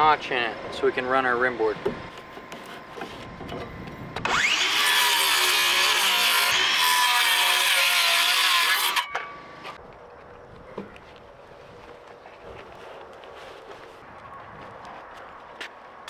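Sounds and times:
circular saw cutting wood: 4.2s - 9.2s.

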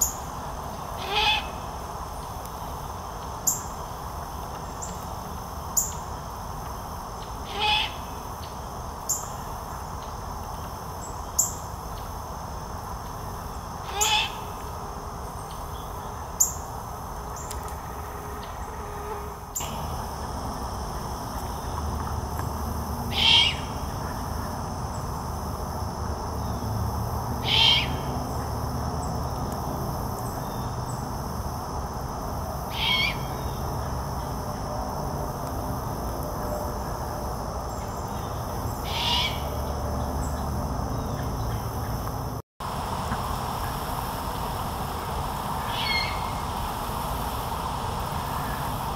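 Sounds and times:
young owl screeching call: 1.0s - 1.6s, 7.5s - 8.0s, 13.9s - 14.4s, 23.1s - 23.7s, 27.4s - 28.0s, 32.7s - 33.3s, 38.8s - 39.5s, 45.6s - 46.4s.

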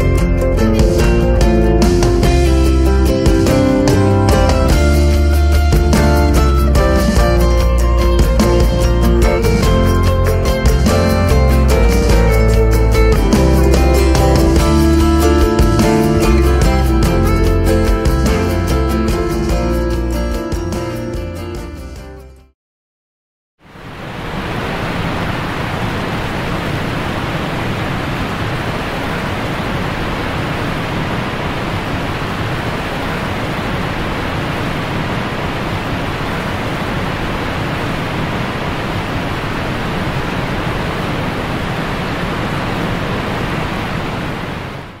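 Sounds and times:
waterfall rushing over rocks: 23.7s - 45.0s.

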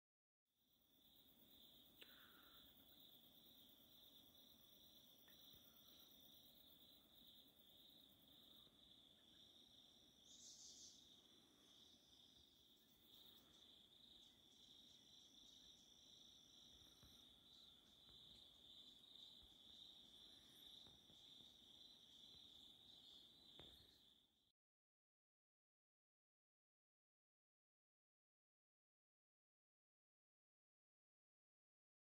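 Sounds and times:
insect buzzing: 1.0s - 24.2s
insect high trill: 9.9s - 24.0s.

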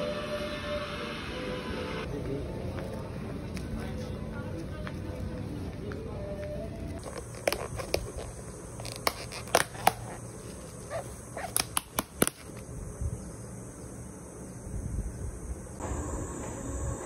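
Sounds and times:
plastic lid clicking and crackling: 7.0s - 10.2s, 11.4s - 12.5s.

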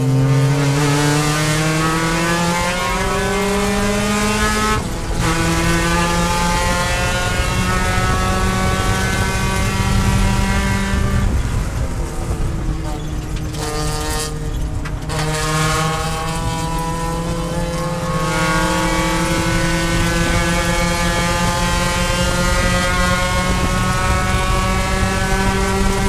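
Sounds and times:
race car engine accelerating: 0.0s - 26.0s.

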